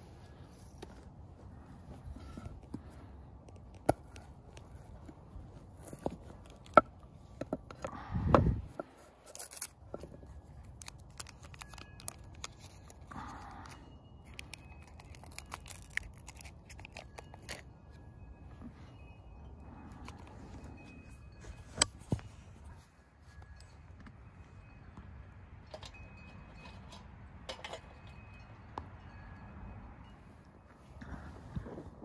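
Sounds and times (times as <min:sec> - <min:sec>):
paper wrapper crinkling and tearing: 0:09.2 - 0:17.6.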